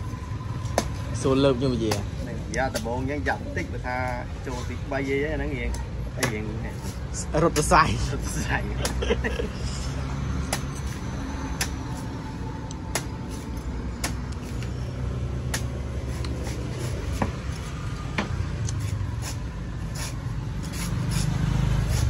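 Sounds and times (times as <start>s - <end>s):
knife chopping coconut husk: 0.7s - 1.0s, 1.8s - 3.0s, 6.1s - 7.8s, 8.7s - 9.0s, 10.4s - 12.0s, 12.8s - 14.7s, 15.4s - 22.0s.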